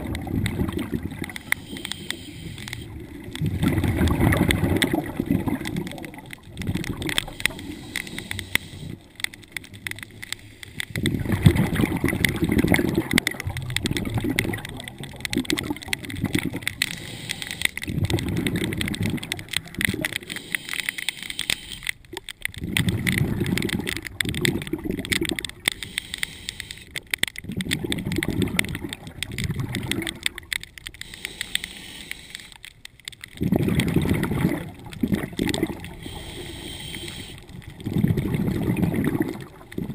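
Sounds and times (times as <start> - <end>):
exhaled bubbles rumbling: 0.0 - 1.8, 2.8 - 10.0, 10.8 - 17.0, 17.7 - 20.3, 22.0 - 25.7, 27.3 - 30.9, 33.1 - 36.2, 37.4 - 39.9
faint regulator hiss: 1.2 - 3.6, 7.2 - 9.4, 16.7 - 17.8, 20.1 - 22.0, 25.7 - 27.0, 30.9 - 32.7, 35.8 - 37.8.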